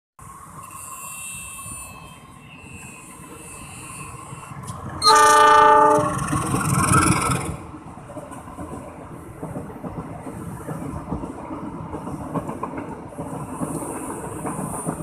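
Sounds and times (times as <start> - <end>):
locomotive rumble passing: 2.1 - 11.4
locomotive horn blast: 5.0 - 6.2.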